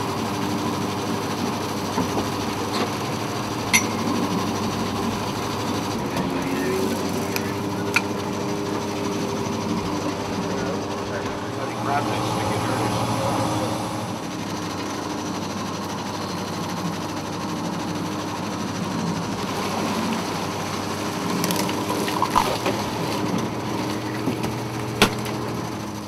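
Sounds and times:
boat engine and net hauler drone: 0:00.0 - 0:26.0
water splashing and dripping: 0:21.3 - 0:23.3.

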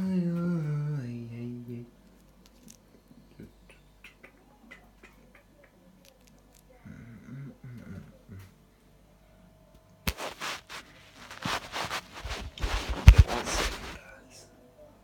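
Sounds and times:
clicks and rustles of handling: 0:02.1 - 0:02.8, 0:10.1 - 0:14.0
man humming: 0:07.0 - 0:08.5.

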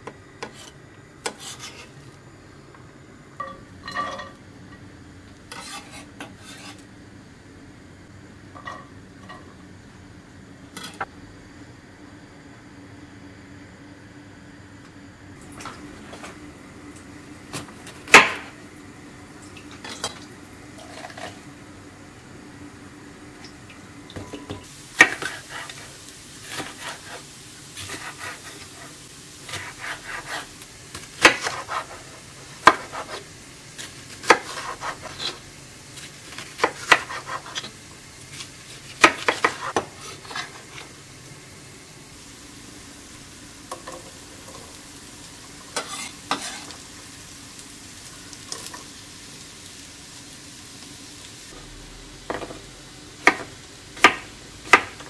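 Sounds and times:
knife chopping on wooden board: 0:32.6 - 0:33.2, 0:36.6 - 0:37.7, 0:39.0 - 0:39.9, 0:53.2 - 0:55.0.

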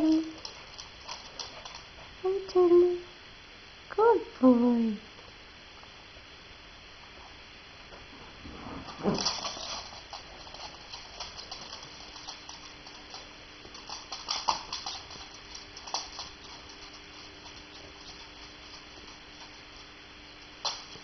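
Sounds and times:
dog claws clicking on wooden floor: 0:00.0 - 0:02.0, 0:08.9 - 0:21.0.

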